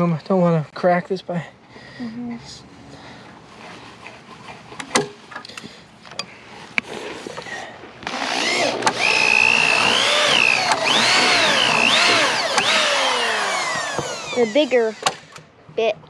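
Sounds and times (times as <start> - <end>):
power drill boring into wood: 8.0 - 15.5.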